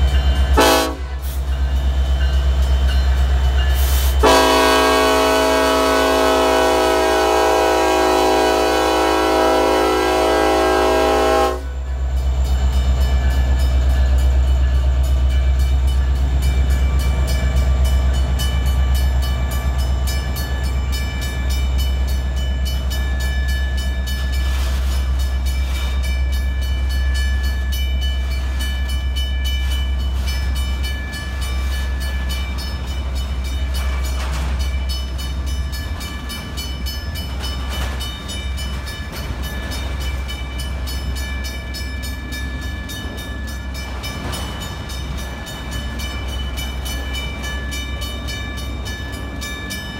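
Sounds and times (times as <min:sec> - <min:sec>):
freight train rumbling and clattering: 0:00.0 - 0:49.9
locomotive horn: 0:00.5 - 0:01.4, 0:04.0 - 0:11.8.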